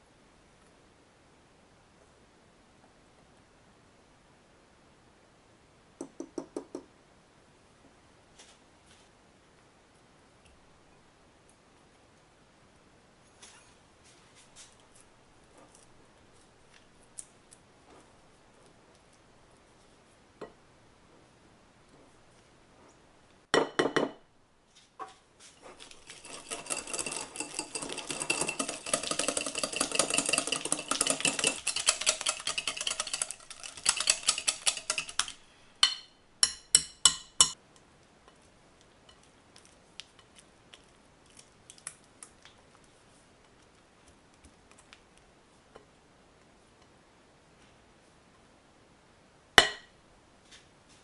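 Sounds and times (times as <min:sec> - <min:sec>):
spatula scraping glass bowl: 0:25.6 - 0:35.3
spatula knocking on glass bowl: 0:35.8 - 0:37.6, 0:49.6 - 0:49.9.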